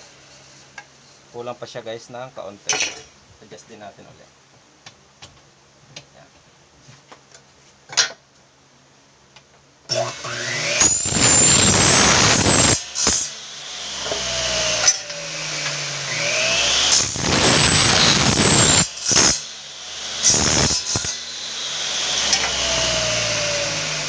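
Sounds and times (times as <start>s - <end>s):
miter saw whining and cutting: 9.9s - 24.0s.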